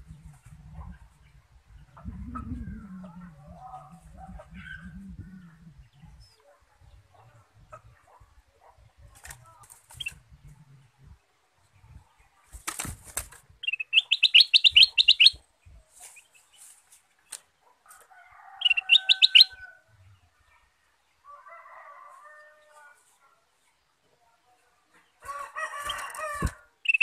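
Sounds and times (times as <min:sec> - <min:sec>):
bird chattering song: 0:00.0 - 0:06.4, 0:13.6 - 0:15.4, 0:18.6 - 0:19.6
bird wings fluttering: 0:09.1 - 0:10.2, 0:12.4 - 0:13.6, 0:25.8 - 0:26.6
bird hopping on perch: 0:09.2 - 0:10.6.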